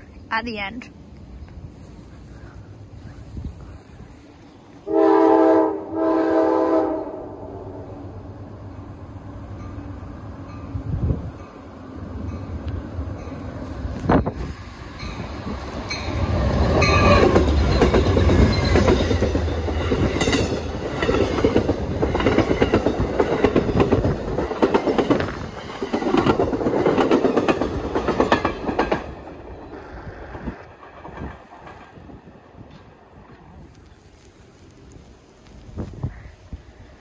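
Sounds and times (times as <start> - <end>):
train wheels clacking over rails: 9.6 - 33.0.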